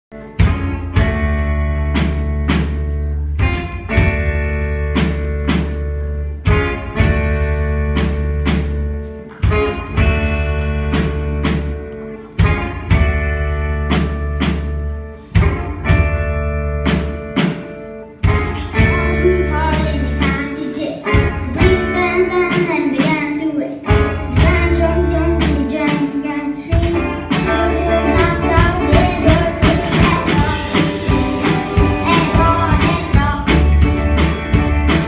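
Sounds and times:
heavy bass: 0:00.1 - 0:22.5, 0:23.9 - 0:25.9, 0:26.8 - 0:35.0
guitar chords: 0:00.1 - 0:35.0
drum kit hits: 0:00.2 - 0:20.4, 0:26.7 - 0:35.0.

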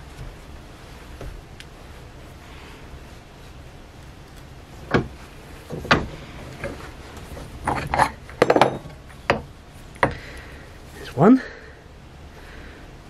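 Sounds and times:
metal clinks and clanks: 0:07.6 - 0:09.2.

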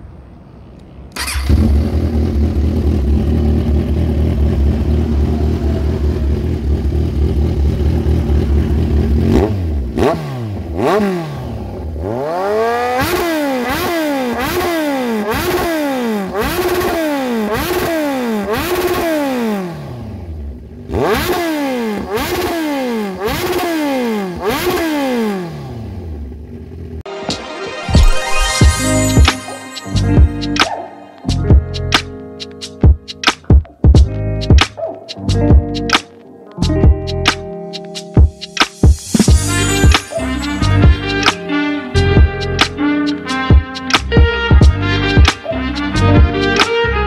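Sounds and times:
motorcycle engine idling and revving: 0:00.8 - 0:27.1.

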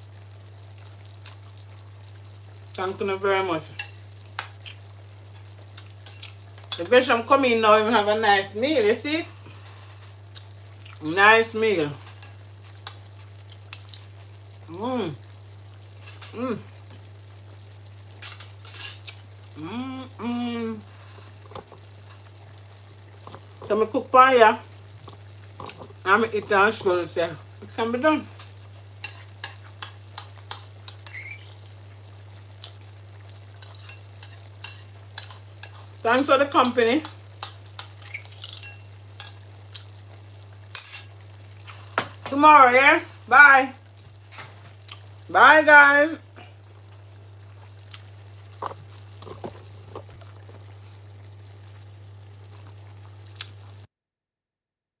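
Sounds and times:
spoon clinking on china bowl: 0:03.8 - 0:04.6
light hiss: 0:40.7 - 0:42.3.

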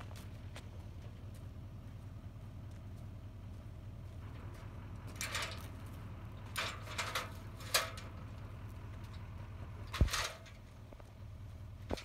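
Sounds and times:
metal ladder clanking and rattling: 0:04.4 - 0:08.4, 0:09.0 - 0:10.7.

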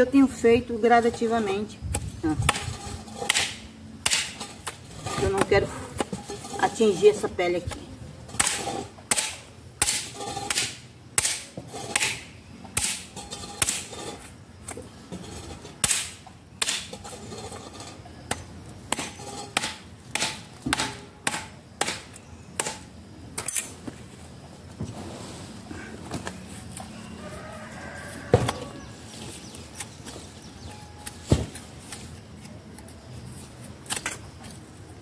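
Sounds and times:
hand tool chipping bark: 0:01.3 - 0:06.9, 0:07.7 - 0:14.3, 0:15.8 - 0:17.5, 0:18.3 - 0:23.7.

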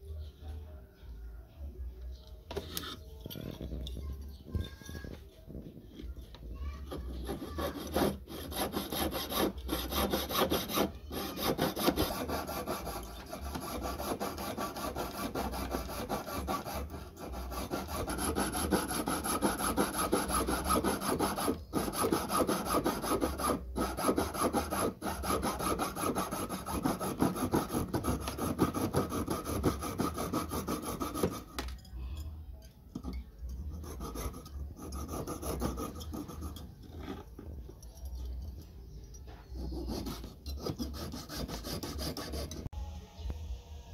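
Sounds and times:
saw rasping through metal: 0:06.6 - 0:31.6, 0:33.7 - 0:37.6, 0:39.5 - 0:42.7.

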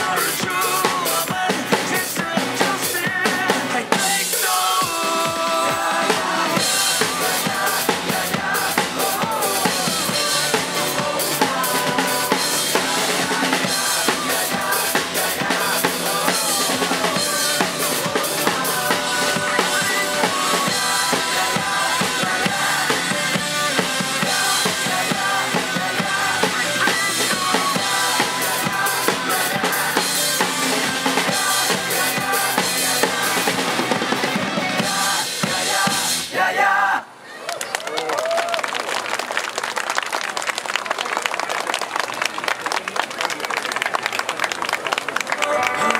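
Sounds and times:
acoustic drum kit played hard: 0:00.0 - 0:36.3
rock song through loudspeaker: 0:00.0 - 0:36.6.

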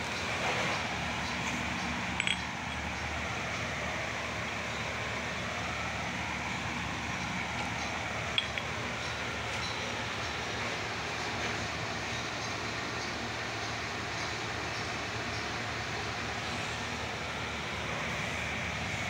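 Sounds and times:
background rumble and hiss: 0:00.0 - 0:19.0
metal parts clinking: 0:02.1 - 0:02.9, 0:08.3 - 0:08.8.

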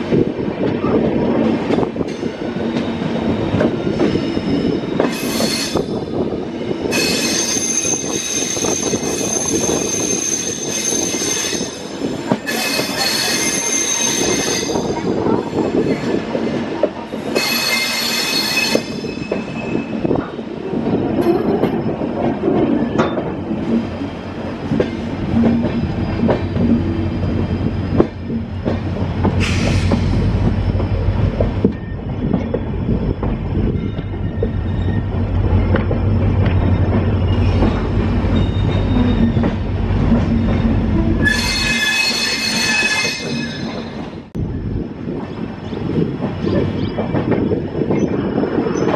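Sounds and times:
train rumbling on track: 0:00.0 - 0:48.9
wheels squealing: 0:33.8 - 0:44.0.

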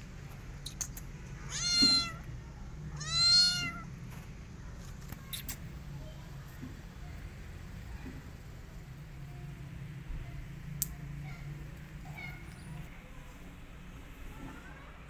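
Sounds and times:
kitten meowing: 0:01.5 - 0:02.3, 0:03.0 - 0:03.9.

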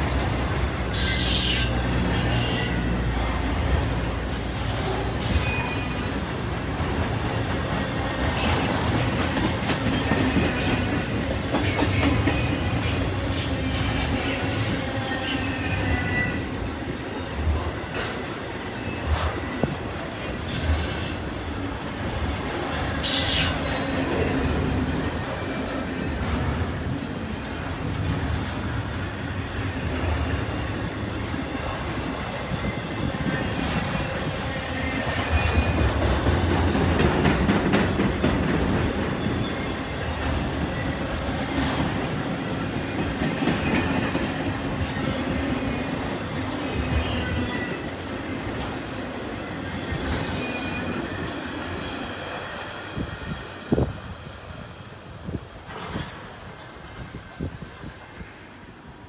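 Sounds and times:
freight train rolling past: 0:00.0 - 0:59.0
wheel squeal: 0:00.9 - 0:03.0, 0:20.4 - 0:21.4, 0:23.0 - 0:23.8.

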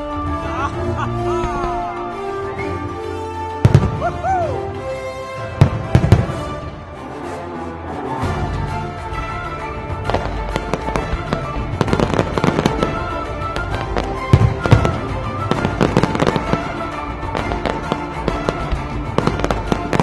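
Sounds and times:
music soundtrack: 0:00.0 - 0:20.0
firework shells bursting and crackling: 0:10.0 - 0:20.0.

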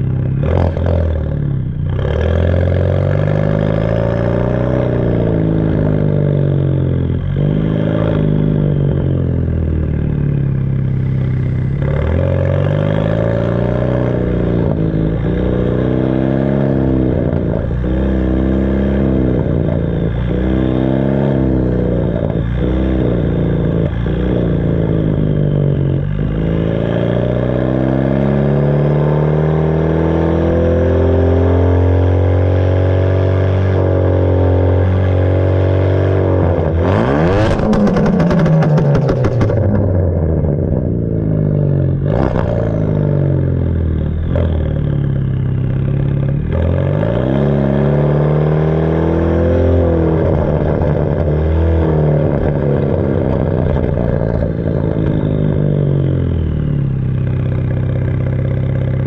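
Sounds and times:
car engine through loud exhaust: 0:00.0 - 0:59.0
exhaust pops and crackles: 0:37.3 - 0:40.9.

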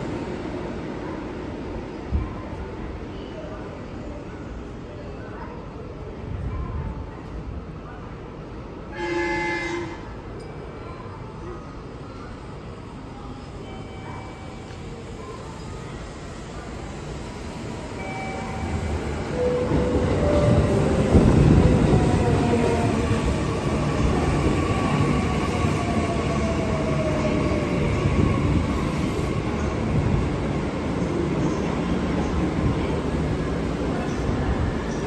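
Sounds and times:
electric train rumbling: 0:12.7 - 0:35.0.

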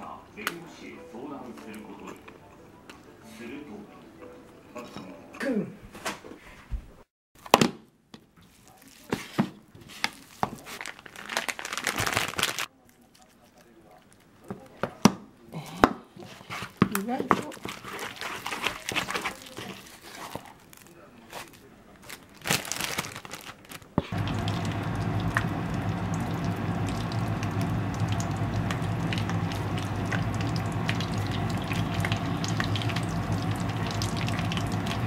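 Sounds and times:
chopsticks scraping in bowl: 0:16.2 - 0:20.6
hot oil sizzling in frying pan: 0:24.1 - 0:35.0
low hum: 0:24.2 - 0:35.0.

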